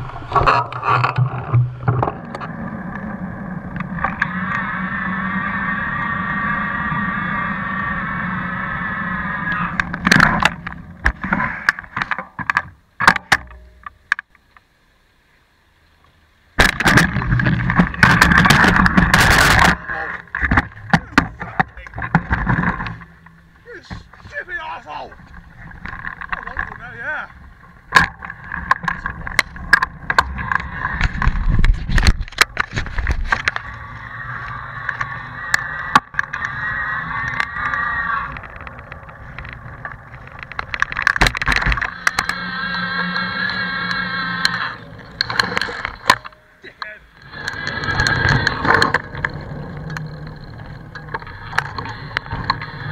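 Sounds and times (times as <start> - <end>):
steady whirring: 0.0 - 11.8, 16.7 - 52.9
low road rumble: 0.0 - 52.9
bicycle rattling over bumps: 16.6 - 52.9
loud rough microphone noise: 16.6 - 52.9
camera being bumped and handled: 27.9 - 33.7, 38.3 - 42.4.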